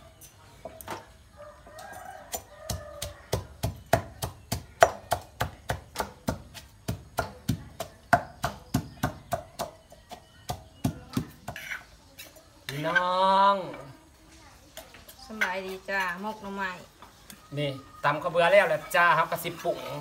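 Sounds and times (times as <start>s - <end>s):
pestle pounding rice in mortar: 2.3s - 13.0s.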